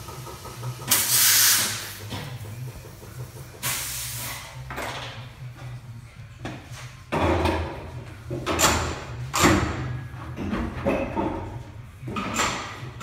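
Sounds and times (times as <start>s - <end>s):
tools hissing and clattering: 0.0s - 5.3s
shop machinery humming: 0.0s - 10.2s.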